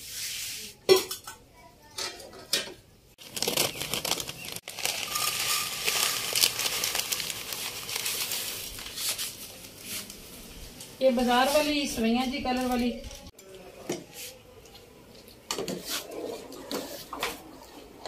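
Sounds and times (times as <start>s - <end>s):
plastic packet crinkling: 3.2s - 9.7s.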